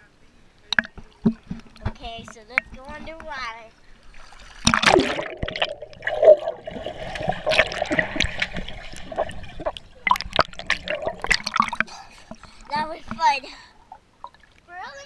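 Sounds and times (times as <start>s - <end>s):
underwater bubbling and gurgling: 0.6s - 14.7s
swimmer kicking clicks and knocks: 0.7s - 3.6s
splash into pool water: 4.2s - 9.4s.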